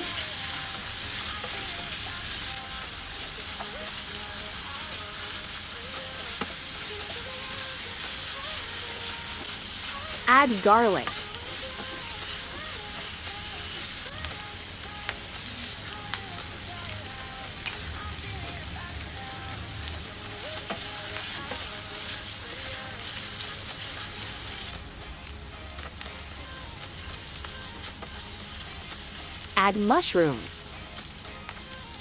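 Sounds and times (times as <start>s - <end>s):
onions sizzling in a frying pan: 0.0s - 32.0s.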